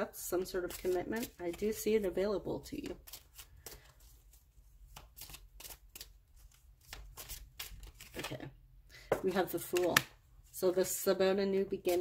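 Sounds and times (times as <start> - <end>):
cards being shuffled: 0.5 - 8.5, 9.6 - 10.2.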